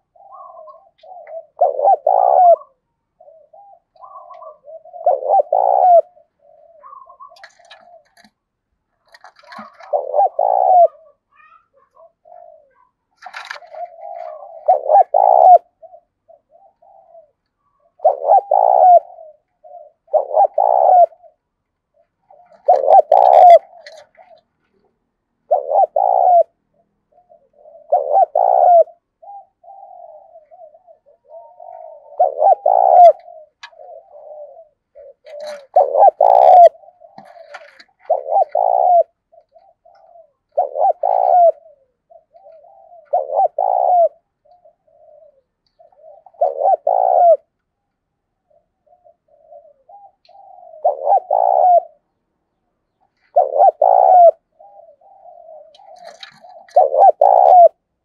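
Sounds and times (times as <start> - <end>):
dove cooing: 0.0 - 52.2, 52.9 - 58.0.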